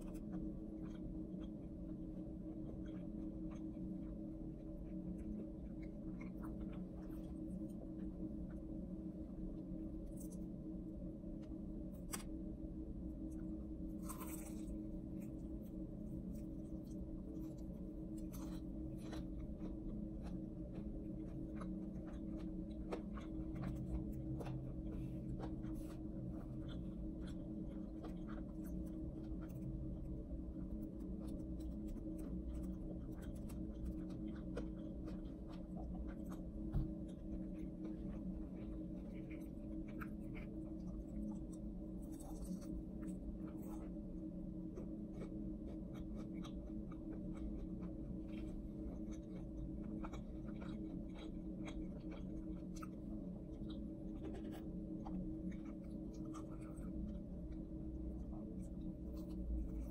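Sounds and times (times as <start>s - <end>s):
low hum: 0.0s - 59.9s
fried chicken crackling and crunching: 13.9s - 43.8s.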